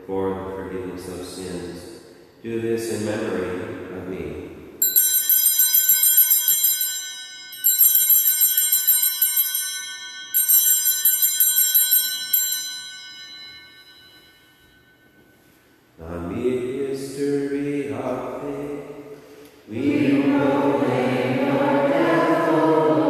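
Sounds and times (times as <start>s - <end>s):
small altar bells ringing: 4.8s - 15.8s.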